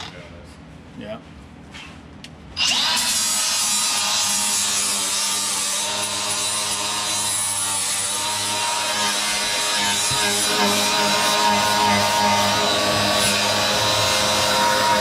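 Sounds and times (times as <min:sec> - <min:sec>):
grinder whining on sheet steel: 0:02.6 - 0:15.0.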